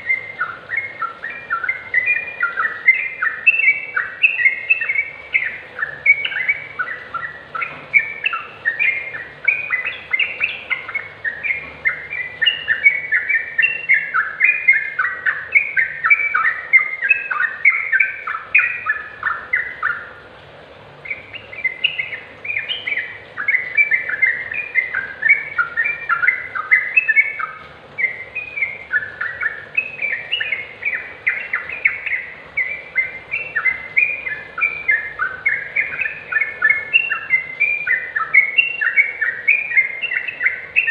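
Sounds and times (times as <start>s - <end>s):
bird chattering song: 0.0s - 20.2s, 21.0s - 40.9s.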